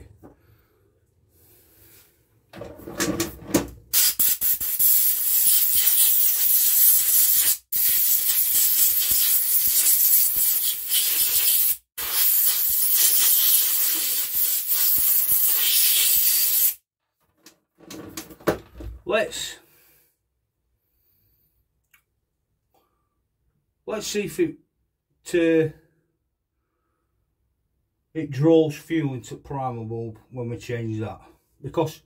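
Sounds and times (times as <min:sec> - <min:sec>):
loud spraying hiss: 0:04.0 - 0:16.8.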